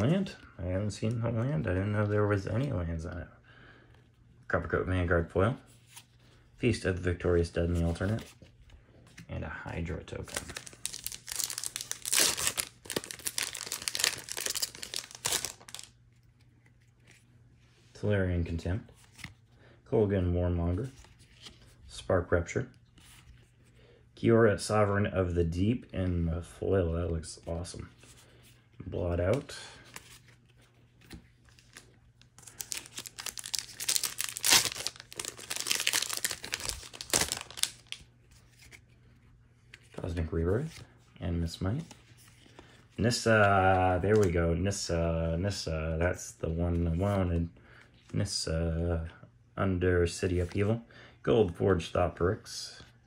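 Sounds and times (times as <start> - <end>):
foil wrapper crinkling and tearing: 10.3 - 15.9, 31.7 - 38.0.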